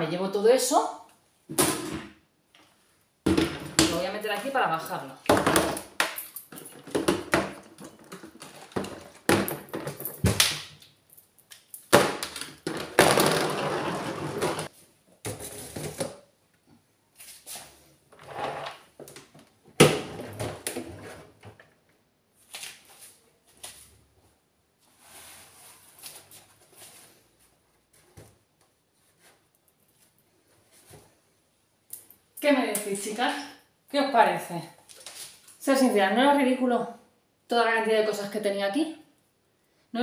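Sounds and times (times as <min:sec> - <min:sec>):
plastic bottles and bins knocking: 0:03.3 - 0:04.1, 0:05.3 - 0:10.6, 0:11.9 - 0:16.2
plastic scraping: 0:12.6 - 0:14.7.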